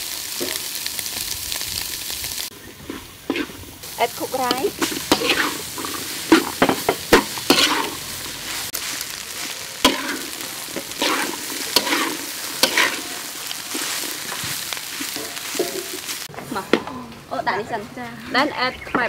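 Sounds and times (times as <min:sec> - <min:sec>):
rice sizzling in a wok: 0:00.0 - 0:17.8
metal spatula scraping a wok: 0:02.6 - 0:16.4.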